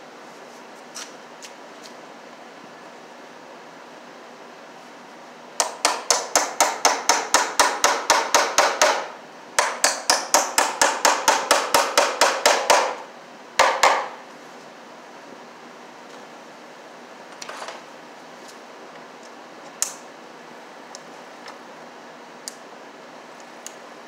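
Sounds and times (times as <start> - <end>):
hammer tapping nails: 5.6 - 13.0, 13.6 - 14.2.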